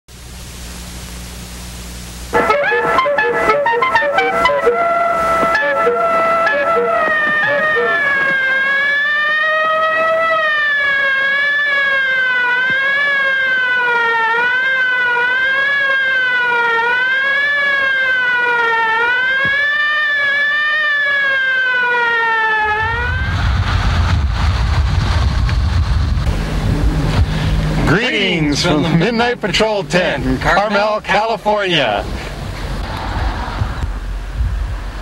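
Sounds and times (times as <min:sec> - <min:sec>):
siren wailing: 0:02.3 - 0:25.1
wind rumble on microphone: 0:05.2 - 0:08.8, 0:22.6 - 0:27.9, 0:32.0 - 0:35.0.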